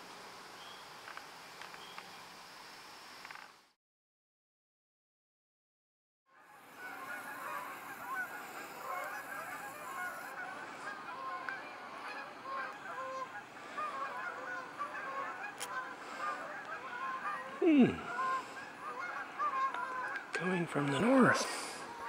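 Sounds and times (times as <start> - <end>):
geese honking: 6.3 - 22.0.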